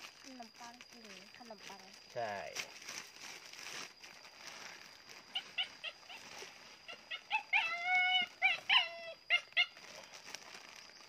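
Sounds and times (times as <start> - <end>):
dog yipping: 5.3 - 9.8
dog whining: 5.4 - 9.8.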